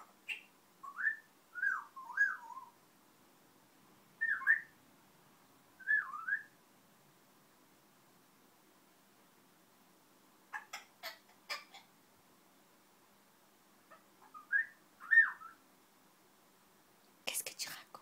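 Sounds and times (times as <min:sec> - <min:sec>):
parrot whistling: 0:04.2 - 0:04.7, 0:05.8 - 0:06.5, 0:14.2 - 0:15.6.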